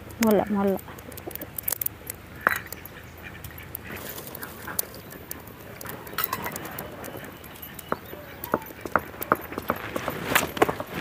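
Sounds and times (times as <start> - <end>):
steel bowl scraping stone: 2.4 - 11.0
stone roller grating on stone: 5.3 - 11.0.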